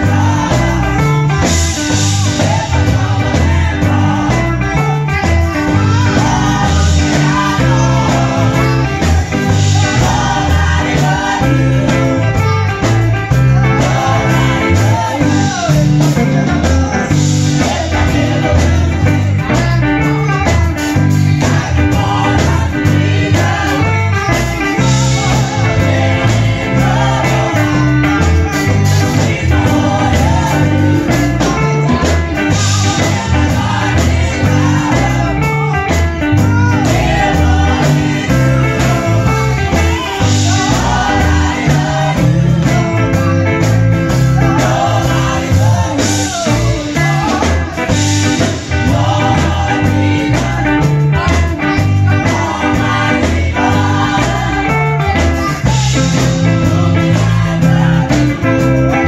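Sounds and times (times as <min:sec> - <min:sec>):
amplified instrumental backing: 0:00.0 - 0:59.0
gospel group singing: 0:00.0 - 0:59.0.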